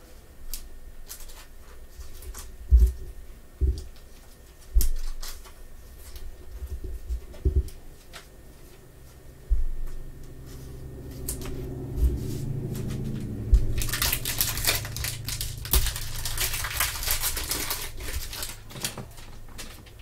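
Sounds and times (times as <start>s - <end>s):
foil wrapper crinkling: 12.8s - 20.0s
plastic card sleeve handling: 13.6s - 19.7s.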